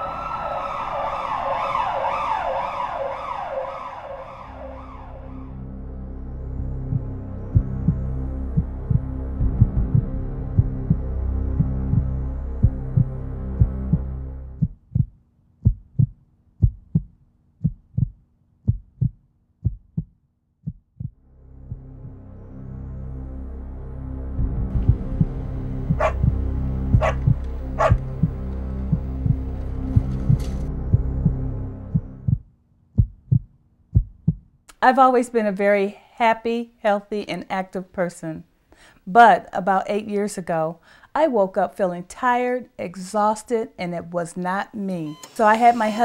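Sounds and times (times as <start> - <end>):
emergency vehicle siren: 0.0 - 8.5
low hum: 0.0 - 15.1, 21.0 - 32.5
heartbeat thumps: 6.8 - 22.2, 24.4 - 34.6.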